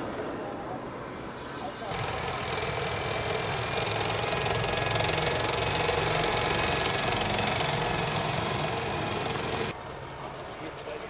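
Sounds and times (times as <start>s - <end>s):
tank engine and tracks: 0.0s - 11.0s.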